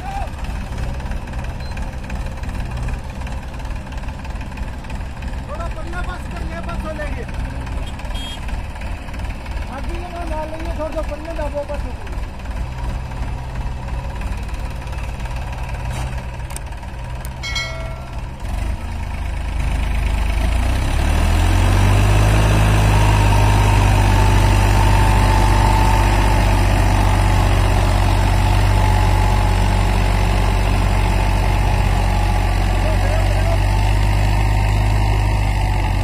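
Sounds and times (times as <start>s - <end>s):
tractor diesel engine revving: 0.3s - 36.0s.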